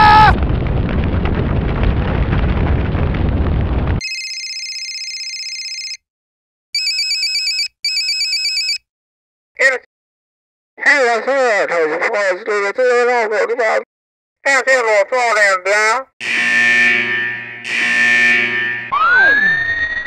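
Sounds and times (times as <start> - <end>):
roaring fire noise: 0.0 - 4.0
telephone ringing: 4.0 - 6.0, 6.8 - 8.8
steady electronic tone: 16.2 - 20.0.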